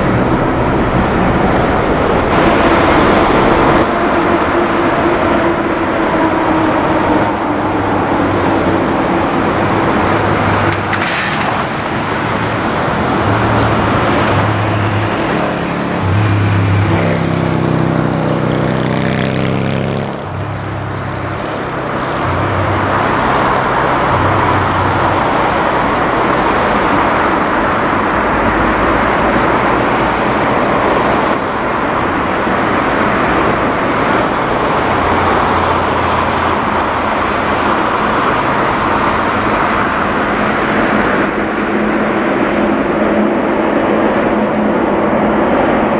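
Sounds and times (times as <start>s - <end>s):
jet engines running: 0.0s - 17.2s.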